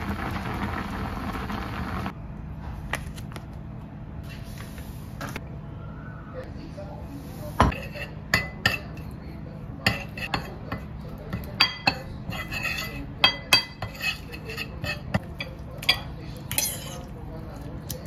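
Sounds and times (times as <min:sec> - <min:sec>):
metal spoon scraping ceramic bowl: 0:07.7 - 0:09.0, 0:09.9 - 0:10.6, 0:11.8 - 0:15.3.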